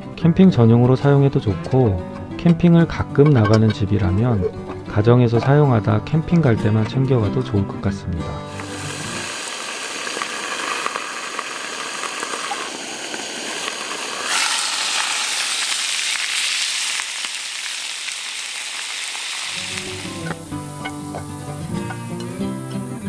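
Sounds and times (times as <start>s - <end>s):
plucked guitar music: 0.0s - 9.3s, 19.5s - 23.0s
steak sizzling in a pan: 8.5s - 23.0s.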